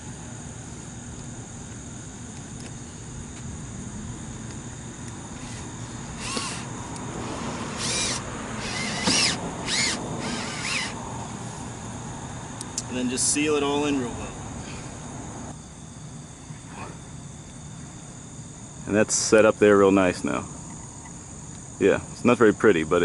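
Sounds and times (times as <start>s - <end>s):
high insect buzz: 0.0s - 23.0s
cordless drill driving a screw: 5.4s - 11.0s.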